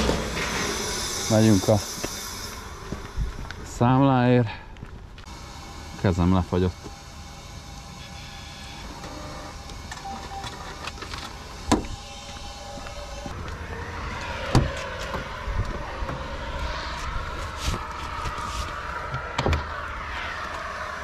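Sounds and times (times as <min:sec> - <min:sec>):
machine hum: 0:00.0 - 0:21.0
footsteps: 0:02.0 - 0:03.7, 0:11.8 - 0:19.3.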